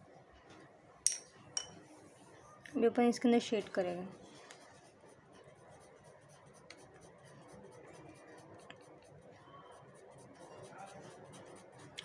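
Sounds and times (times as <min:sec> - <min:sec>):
pencil scratching on paper: 0:03.5 - 0:12.0.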